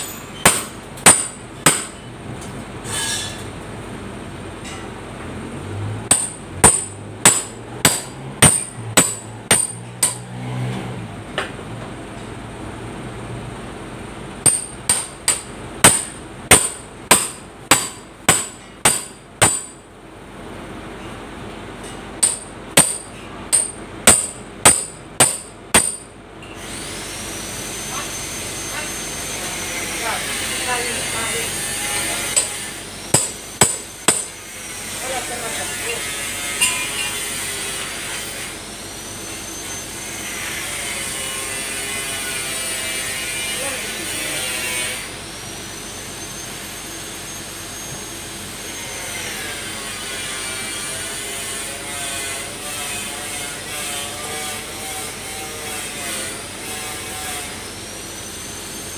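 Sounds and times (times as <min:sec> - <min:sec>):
hammer striking steel panel: 0:00.0 - 0:02.1, 0:06.1 - 0:10.3, 0:14.4 - 0:19.8, 0:22.2 - 0:26.1, 0:32.3 - 0:34.3.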